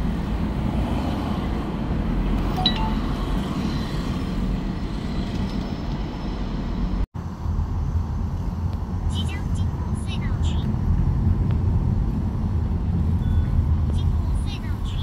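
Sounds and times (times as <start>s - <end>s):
car road and engine rumble: 0.0s - 15.0s
short high electronic chime: 2.6s - 3.3s.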